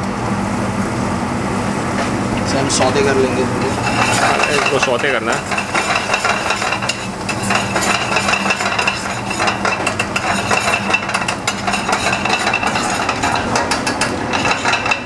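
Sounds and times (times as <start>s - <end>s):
vegetables sizzling in butter: 1.7s - 15.0s
metal spoon scraping a pan: 3.6s - 15.0s.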